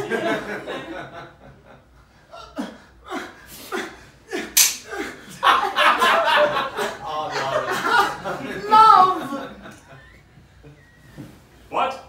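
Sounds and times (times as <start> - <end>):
audience laughter: 0.0 - 1.9, 4.4 - 10.9
mousetrap snapping shut: 4.6 - 4.9.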